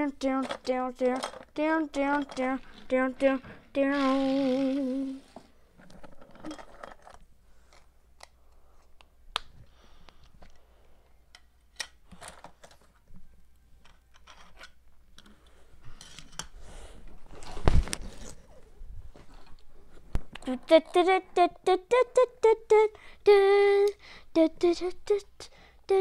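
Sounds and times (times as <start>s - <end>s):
child's sing-song voice: 0.0s - 5.4s, 20.4s - 26.0s
plastic toys clicking on wood: 0.4s - 2.5s.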